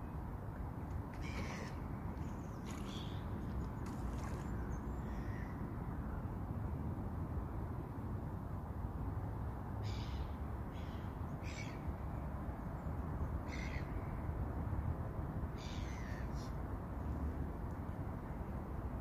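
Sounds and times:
crows cawing: 1.2s - 1.8s.

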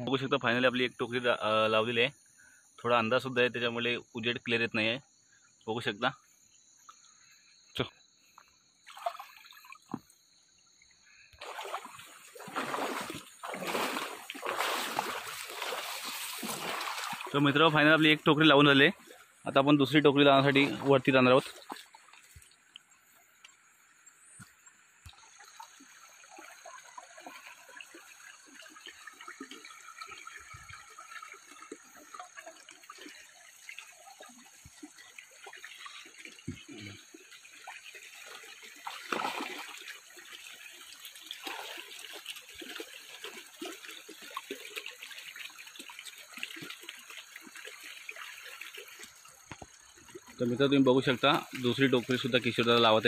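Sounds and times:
river water trickling and splashing: 8.2s - 53.0s
steps through grass and water: 8.8s - 10.1s, 11.4s - 19.5s, 20.3s - 22.9s, 38.2s - 40.2s, 41.1s - 46.8s.

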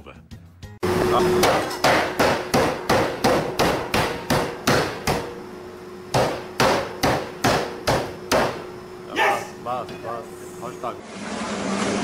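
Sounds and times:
cleaver chopping ribs on board: 1.4s - 5.3s, 6.1s - 8.6s.

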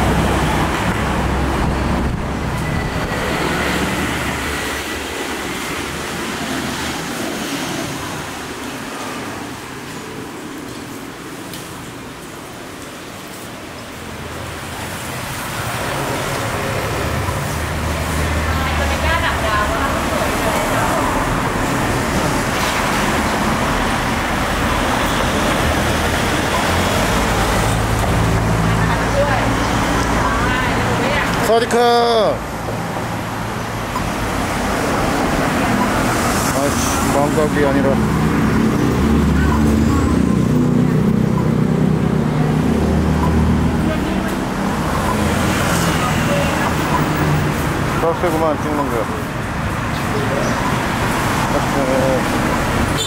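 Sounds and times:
motor scooters passing: 14.2s - 31.8s, 32.6s - 53.0s.

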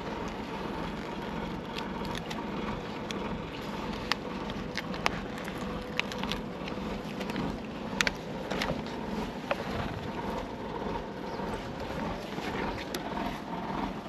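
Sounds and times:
sticker sheet crackling: 0.0s - 8.9s
background rumble: 0.0s - 14.0s.

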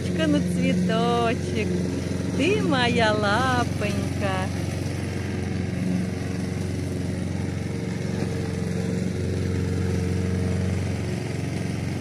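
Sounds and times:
lawn mower engine running: 0.0s - 12.0s.

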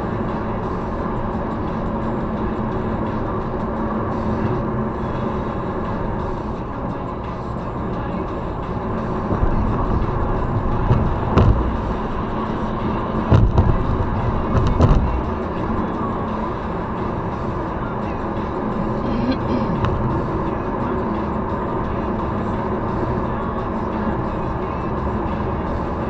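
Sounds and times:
car road and tyre noise: 0.0s - 26.0s
short low thumps: 10.7s - 12.1s, 13.2s - 15.4s.

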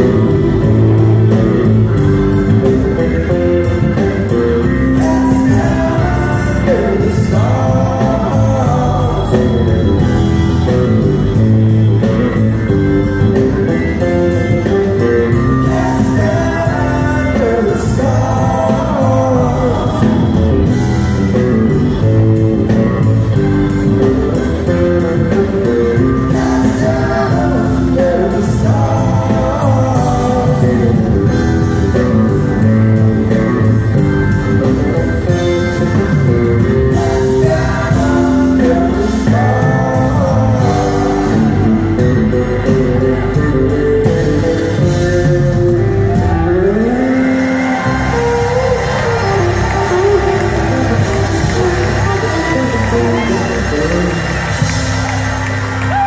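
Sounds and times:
person singing: 0.0s - 12.0s, 14.0s - 32.7s, 34.6s - 55.1s
bass: 0.0s - 56.0s
drums: 0.0s - 56.0s
electric guitar: 0.0s - 56.0s.

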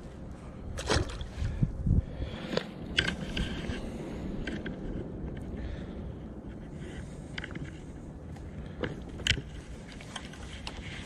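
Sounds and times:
fish splashing into water: 0.8s - 1.3s.

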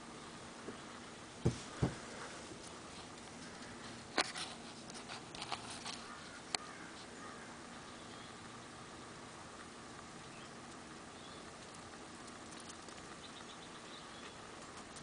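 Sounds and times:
faint background hum: 0.0s - 15.0s
dull thumps: 1.4s - 2.3s
sharp clicks and rustles: 1.4s - 7.1s, 11.5s - 13.3s, 14.2s - 15.0s.

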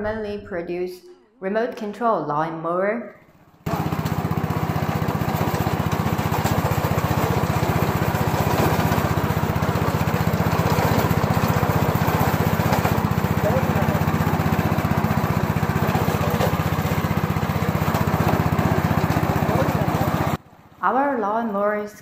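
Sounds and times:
lawn mower engine running: 3.6s - 20.9s.

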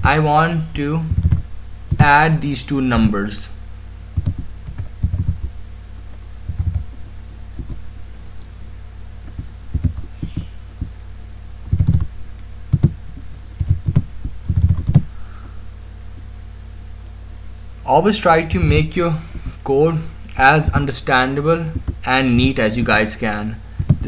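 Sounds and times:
steady low hum: 0.0s - 24.0s
keyboard typing: 1.1s - 2.1s, 4.2s - 5.5s, 6.1s - 7.0s, 7.6s - 7.8s, 9.2s - 10.9s, 11.6s - 12.1s, 12.7s - 15.1s, 21.7s - 22.0s, 23.8s - 24.0s.

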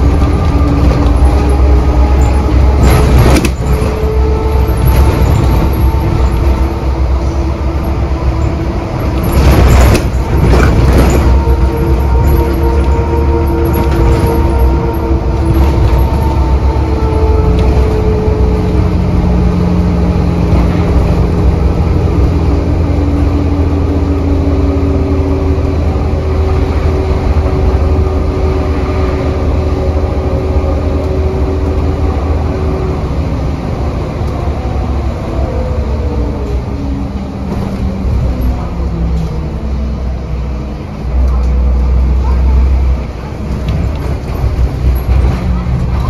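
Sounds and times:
whining tones: 0.0s - 33.2s
bus engine drone: 0.0s - 46.0s
road noise: 0.0s - 46.0s.

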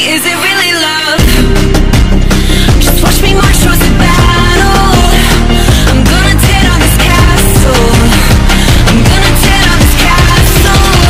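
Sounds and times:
pop music with heavy bass: 0.0s - 11.0s.

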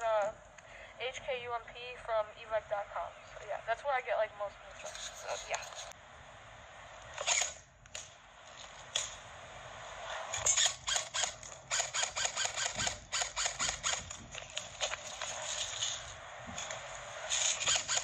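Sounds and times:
airsoft rifle shots: 10.4s - 14.1s.

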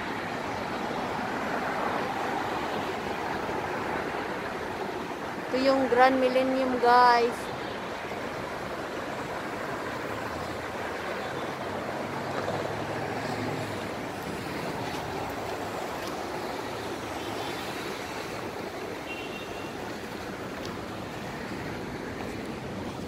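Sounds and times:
cars passing on street: 0.0s - 23.0s
vehicle engine hum: 5.7s - 23.0s.

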